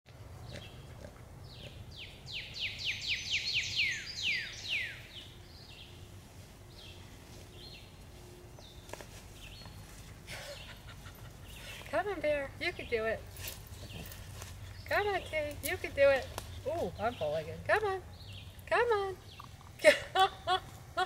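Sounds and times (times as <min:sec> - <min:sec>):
bird whistling song: 0:02.3 - 0:05.8.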